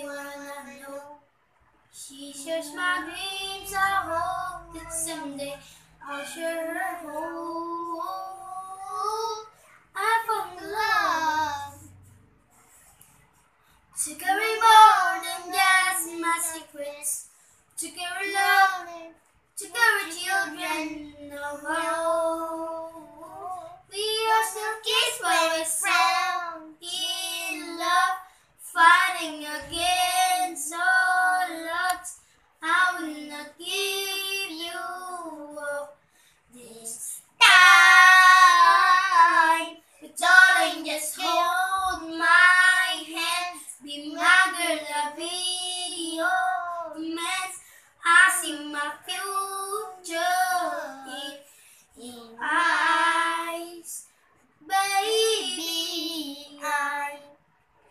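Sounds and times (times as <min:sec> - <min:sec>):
boy singing unaccompanied: 0:02.0 - 0:12.0, 0:14.0 - 0:17.2, 0:17.8 - 0:51.4, 0:52.0 - 0:54.0, 0:54.6 - 0:57.4.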